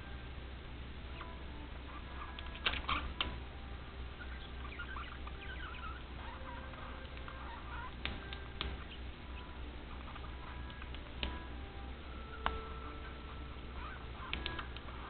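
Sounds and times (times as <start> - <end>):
budgerigars chattering: 1.1 - 3.4, 4.0 - 15.0
sharp clicks: 14.2 - 15.0.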